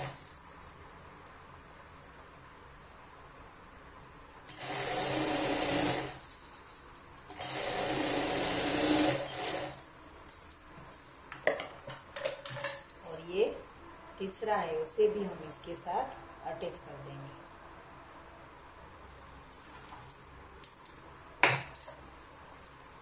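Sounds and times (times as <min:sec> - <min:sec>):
sewing machine stitching: 0:04.5 - 0:06.4, 0:07.3 - 0:09.9.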